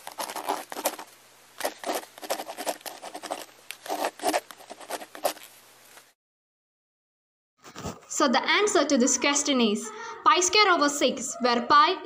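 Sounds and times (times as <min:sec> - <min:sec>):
chalk scratching on chalkboard: 0:01.6 - 0:05.4.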